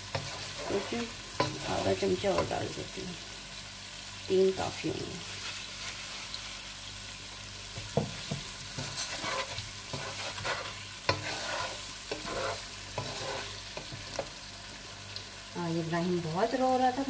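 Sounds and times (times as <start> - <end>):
food sizzling in a pot: 0.0 - 17.0
spoon scraping and knocking pot: 8.3 - 14.3.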